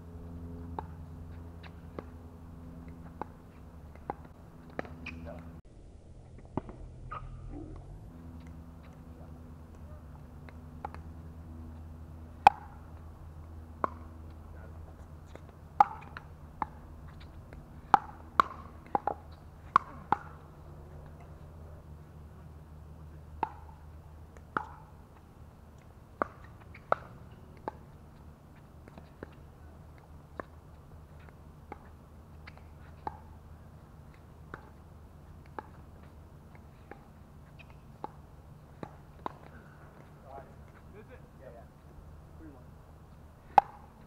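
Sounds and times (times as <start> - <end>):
ball bouncing on court: 0.7 - 5.5, 9.7 - 13.1, 13.8 - 14.4, 15.3 - 21.3, 35.4 - 40.1, 43.5 - 44.0.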